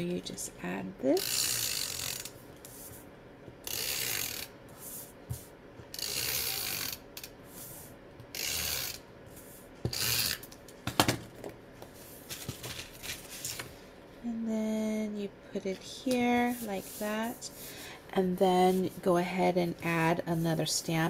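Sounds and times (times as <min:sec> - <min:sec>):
tape runner rasping across paper: 0:03.7 - 0:05.4, 0:06.0 - 0:07.0.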